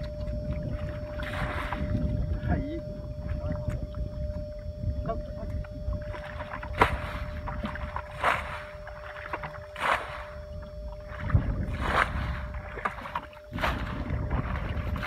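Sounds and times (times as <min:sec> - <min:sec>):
bucket scooping water: 0:00.0 - 0:02.4, 0:05.4 - 0:15.0
water splashing: 0:00.0 - 0:15.0.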